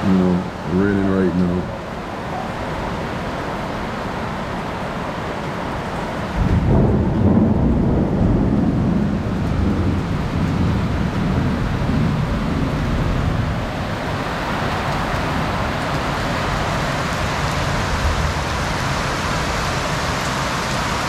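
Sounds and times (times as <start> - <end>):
heavy rain falling: 0.0 - 21.0
deep rumble of thunder: 6.4 - 13.7.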